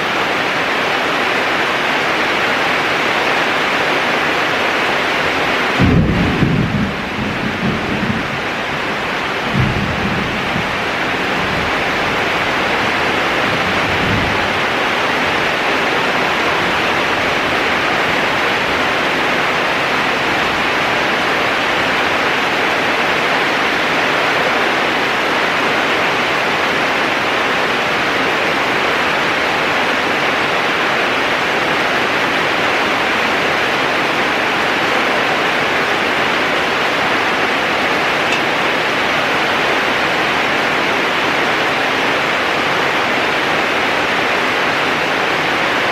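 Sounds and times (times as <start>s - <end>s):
heavy rain pouring: 0.0s - 45.9s
thunder rumbling: 5.7s - 23.0s.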